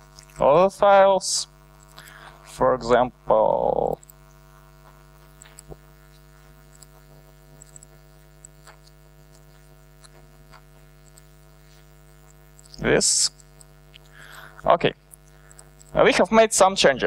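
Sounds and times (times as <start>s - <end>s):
electrical mains hum: 0.0s - 17.0s
mouse and keyboard clicks: 6.7s - 6.9s, 7.6s - 9.4s.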